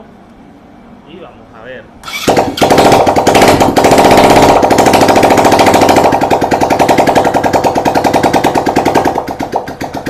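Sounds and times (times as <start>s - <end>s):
motorcycle engine without muffler: 2.0s - 10.0s.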